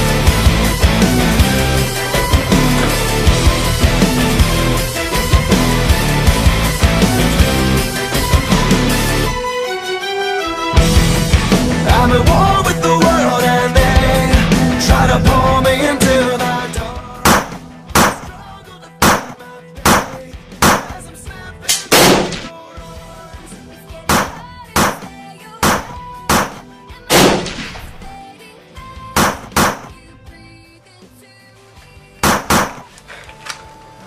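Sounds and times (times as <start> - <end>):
quiet background music: 9.3 - 34.0
pistol gunshots echoing: 17.3 - 18.3, 21.7 - 22.5, 24.1 - 28.1, 32.2 - 32.8.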